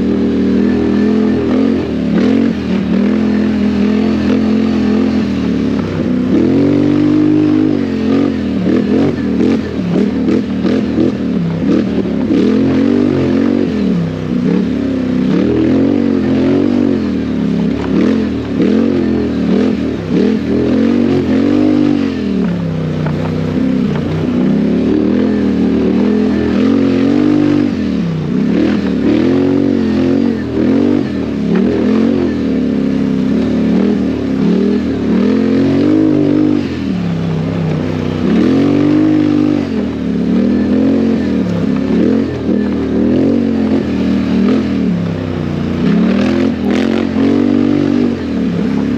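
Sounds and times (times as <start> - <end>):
quad engine revving: 0.0 - 48.9.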